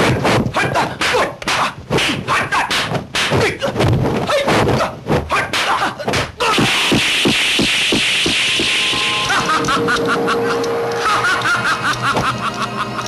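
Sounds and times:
punch and block hits: 0:00.0 - 0:08.7.

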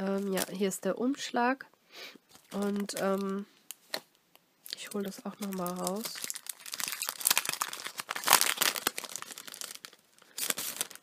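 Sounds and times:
paper crinkling and rustling: 0:04.8 - 0:11.0.

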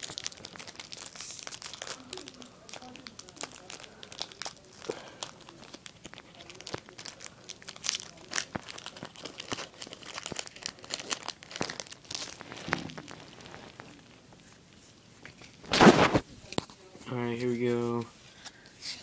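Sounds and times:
foil wrapper crinkling and tearing: 0:00.0 - 0:14.2.

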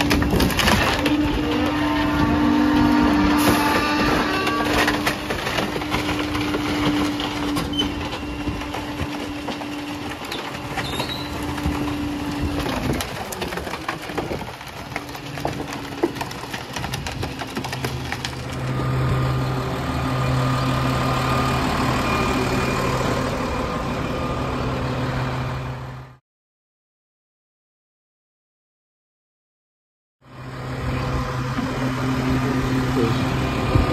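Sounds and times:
debris cracking and clattering: 0:00.0 - 0:19.2
garbage truck engine and packer: 0:00.0 - 0:26.2, 0:30.2 - 0:33.9.

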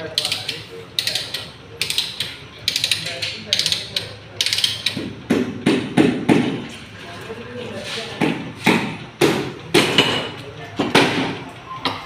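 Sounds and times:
ratchet pawl clicking: 0:00.0 - 0:05.0
heavy knock: 0:05.0 - 0:06.6.

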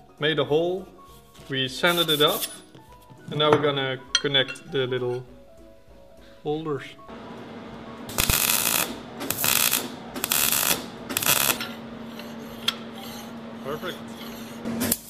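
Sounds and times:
welding bursts: 0:07.2 - 0:12.1.

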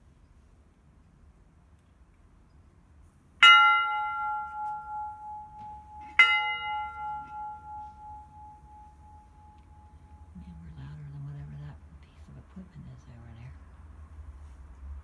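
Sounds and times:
large bell ringing: 0:03.4 - 0:10.8.

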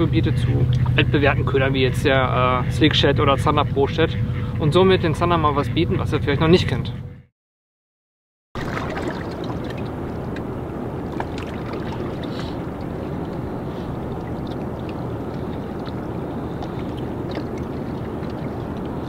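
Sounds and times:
wind: 0:00.0 - 0:07.3, 0:08.6 - 0:19.0
river water rushing: 0:08.6 - 0:19.0.

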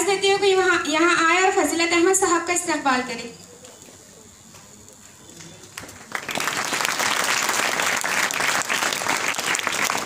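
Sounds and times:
audience applauding: 0:05.4 - 0:10.0.

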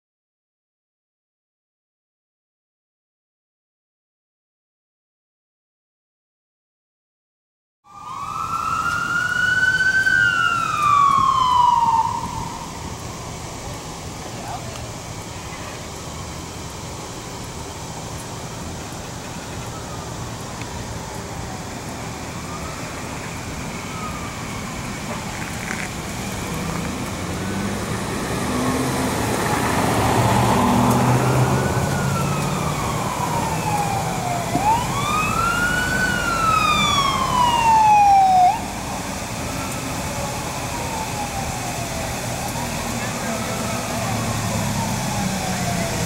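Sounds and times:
emergency siren wailing: 0:07.9 - 0:46.0
vehicle engine running: 0:10.4 - 0:35.1.

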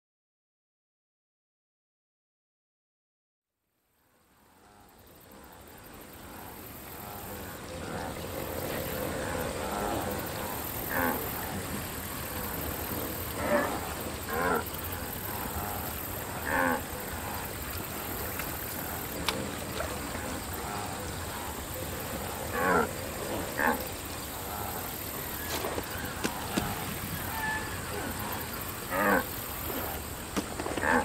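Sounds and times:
steady background hiss: 0:03.8 - 0:31.0
wildebeest grunting and lowing: 0:06.3 - 0:31.0.

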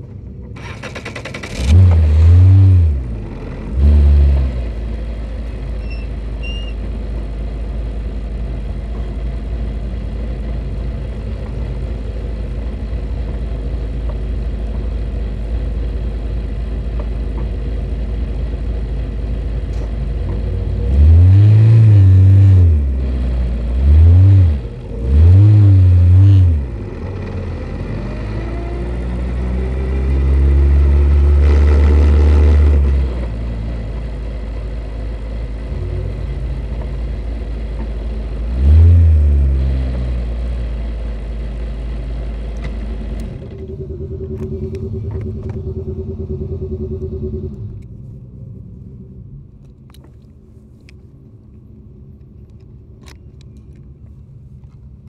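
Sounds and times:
race car engine revving: 0:00.6 - 0:05.1, 0:20.2 - 0:34.0.

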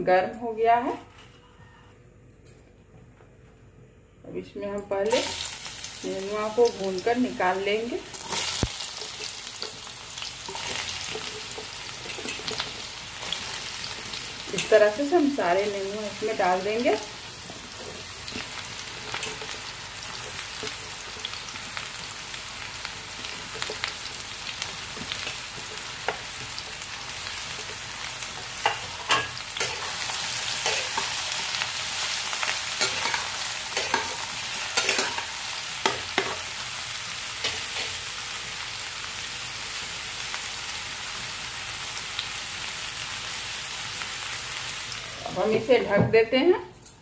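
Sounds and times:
vegetables sizzling in oil: 0:05.0 - 0:46.5
spatula scraping and tapping pan: 0:32.8 - 0:34.2, 0:34.8 - 0:36.4.

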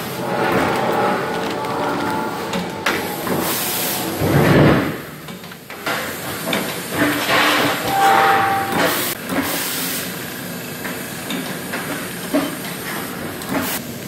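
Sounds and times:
machine air hisses: 0:05.9 - 0:10.3
short steady tone: 0:07.8 - 0:09.0.

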